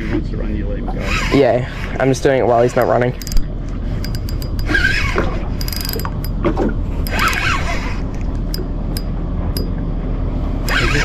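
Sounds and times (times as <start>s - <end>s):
reel whining glides: 1.0s - 9.7s, 10.6s - 11.0s
fishing reel cranking with clicks: 2.8s - 3.4s, 4.0s - 6.4s, 7.0s - 7.8s, 10.7s - 11.0s.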